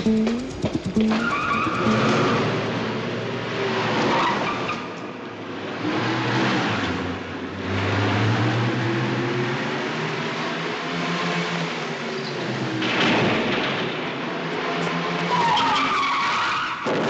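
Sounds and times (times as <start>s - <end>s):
car engine revving hard: 0.6s - 4.6s
tyres squealing: 1.1s - 2.6s.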